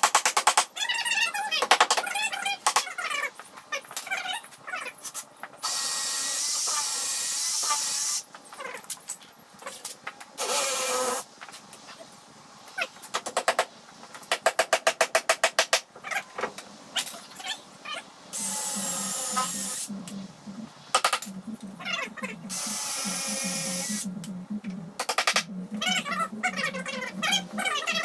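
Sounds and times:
cordless drill boring wood: 0:18.4 - 0:19.8.

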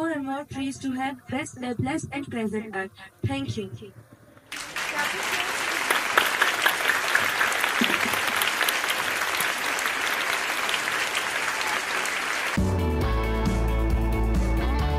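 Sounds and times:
children applauding: 0:04.5 - 0:12.7.

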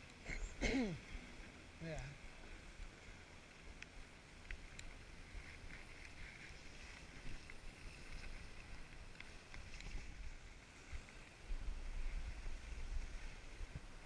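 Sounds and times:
wind rumble on microphone: 0:03.7 - 0:14.0.

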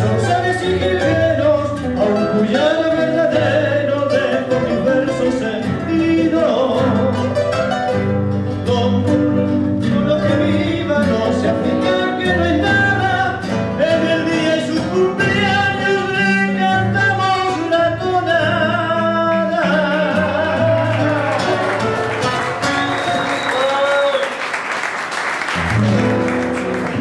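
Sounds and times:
man singing: 0:00.0 - 0:07.6, 0:08.5 - 0:24.4
classical guitar: 0:00.0 - 0:23.7, 0:25.5 - 0:27.0.

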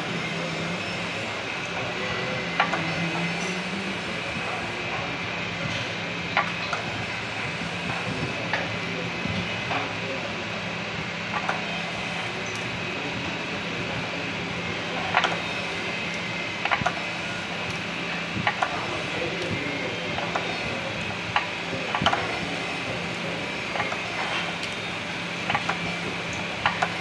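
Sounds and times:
polishing machinery humming: 0:00.0 - 0:27.0.

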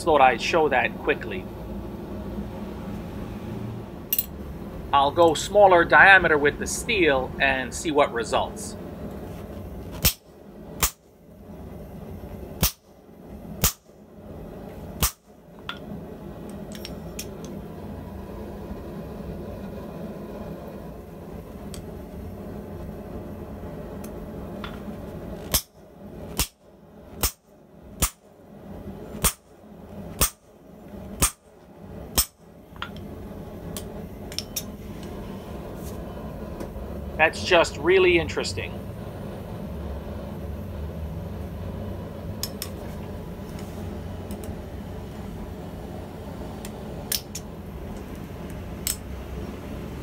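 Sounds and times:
steady hum: 0:00.0 - 0:50.0
hammer clanking on hot steel: 0:12.6 - 0:12.8.

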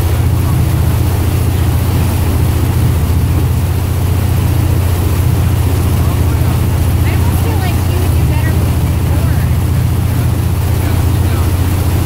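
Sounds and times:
churning wake rushing: 0:00.0 - 0:12.0
motorboat engine drone: 0:00.0 - 0:12.0.

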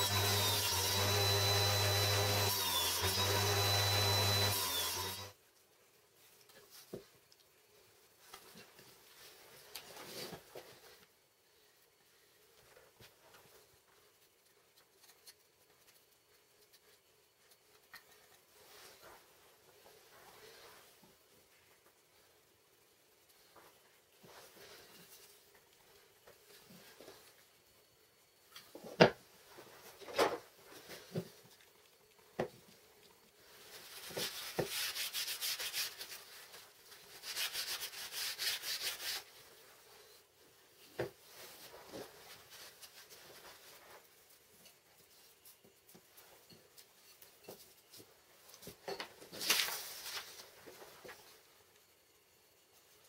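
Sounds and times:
hand sanding strokes: 0:33.8 - 0:39.5.

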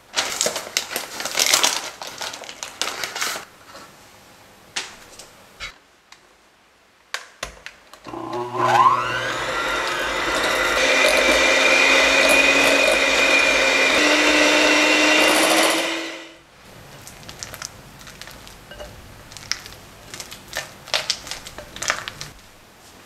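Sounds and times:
electric hand mixer whining: 0:08.1 - 0:16.4.

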